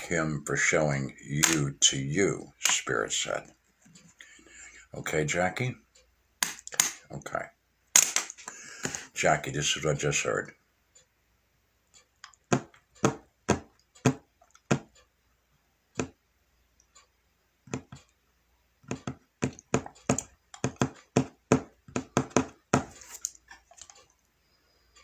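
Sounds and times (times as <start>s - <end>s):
sharp clicks or taps: 1.4s - 1.6s, 6.4s - 7.0s, 12.2s - 14.9s, 17.7s - 18.0s, 18.8s - 23.4s.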